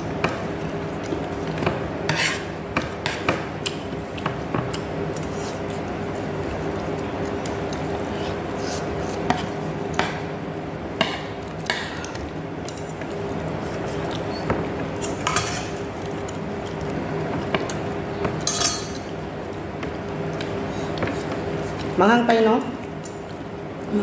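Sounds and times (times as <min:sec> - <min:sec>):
chopsticks scraping bowl: 0:02.0 - 0:03.3.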